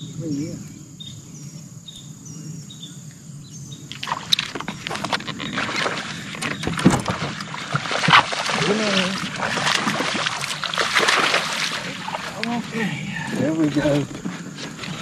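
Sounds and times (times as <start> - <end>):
insect chirps: 0.0 - 15.0
insects droning: 0.0 - 15.0
fish splashing: 3.9 - 12.8
sharp knocks on boat: 6.4 - 8.4.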